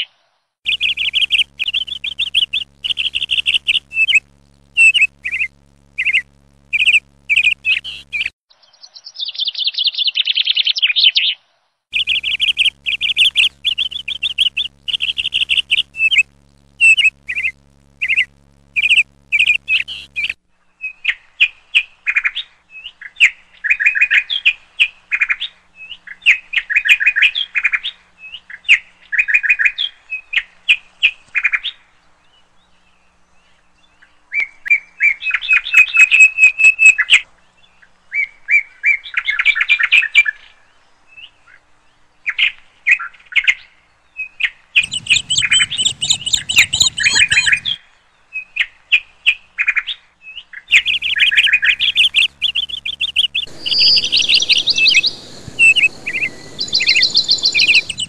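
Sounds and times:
songbirds chirping: 0.0s - 20.7s, 44.8s - 48.3s, 50.4s - 58.0s
wren singing trills: 0.7s - 8.3s, 12.0s - 20.4s, 44.8s - 47.8s, 50.7s - 58.0s.

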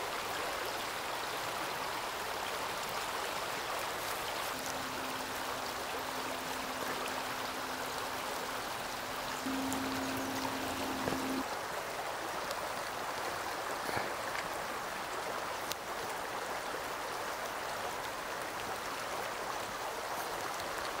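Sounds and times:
stream flowing over rocks: 0.0s - 21.0s
low steady tone: 4.2s - 11.5s.

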